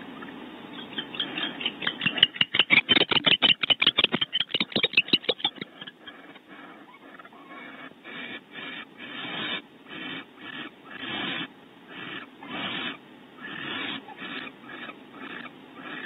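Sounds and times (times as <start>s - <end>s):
owl scratchy clicks: 0.8s - 16.0s.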